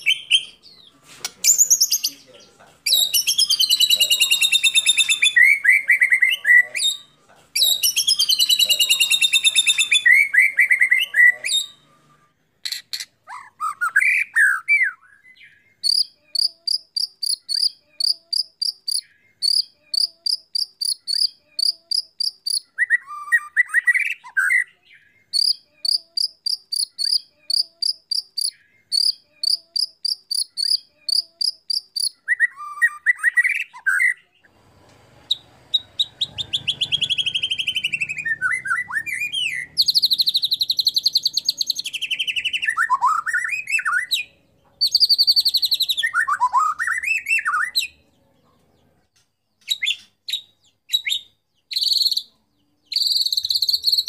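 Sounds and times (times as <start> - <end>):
bird singing: 0.0 - 34.6, 35.3 - 54.0.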